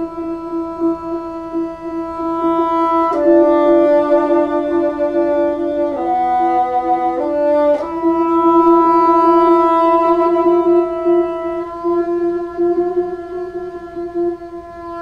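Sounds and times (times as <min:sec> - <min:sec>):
bassoon sustained notes: 0:00.0 - 0:15.0.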